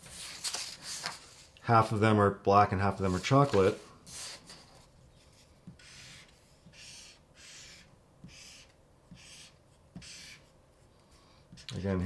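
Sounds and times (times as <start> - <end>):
marker drawing on paper: 3.0 - 10.9.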